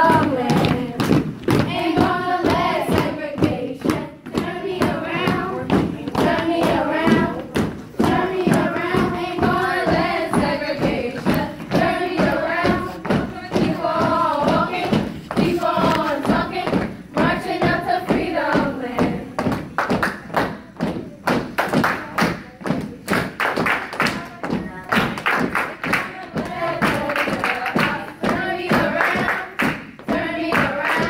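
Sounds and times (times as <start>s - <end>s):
group chanting and singing: 0.0s - 31.0s
stomps and claps on hard floor: 0.0s - 31.0s.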